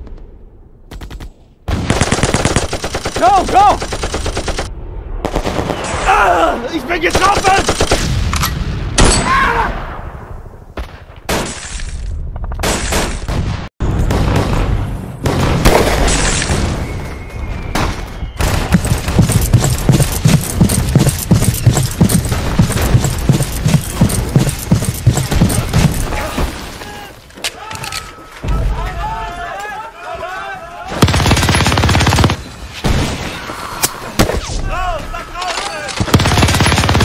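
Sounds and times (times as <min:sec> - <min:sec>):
gunshots and bursts: 0:00.8 - 0:06.0, 0:07.1 - 0:09.2, 0:10.7 - 0:26.6, 0:30.9 - 0:34.6, 0:35.4 - 0:37.0
rapid machine-gun fire: 0:01.7 - 0:05.8, 0:31.0 - 0:32.4, 0:36.0 - 0:37.0.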